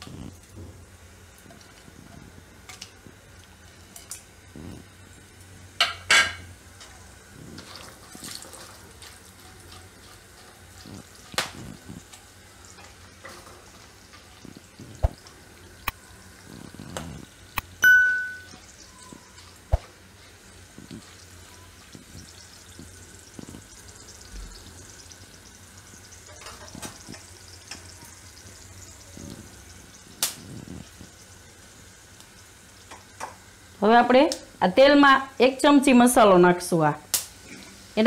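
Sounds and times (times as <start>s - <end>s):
spices sizzling in oil: 0.0s - 38.0s
electronic ding: 17.8s - 18.6s.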